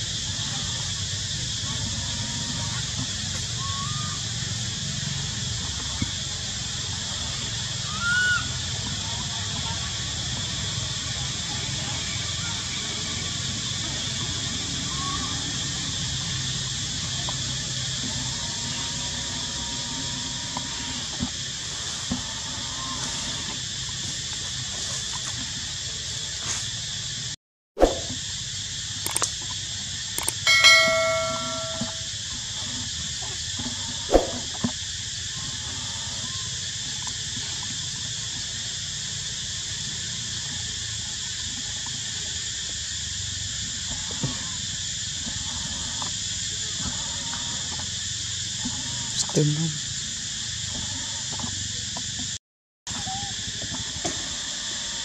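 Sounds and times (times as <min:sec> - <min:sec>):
forest insects droning: 0:00.0 - 0:55.0
bell-like ringing tone: 0:30.3 - 0:32.1.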